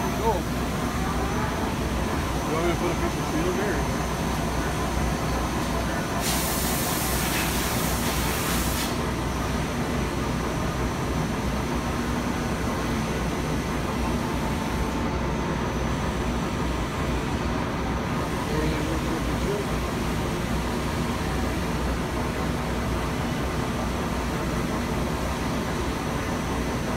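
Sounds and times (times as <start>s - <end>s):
lathe spindle running: 0.0s - 6.2s
loud hiss: 6.0s - 9.2s.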